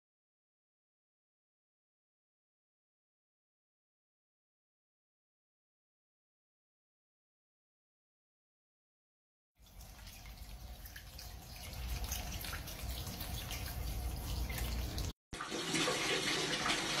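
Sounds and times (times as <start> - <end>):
tap running into bucket: 9.6 - 17.0
water spraying onto floor: 9.6 - 17.0.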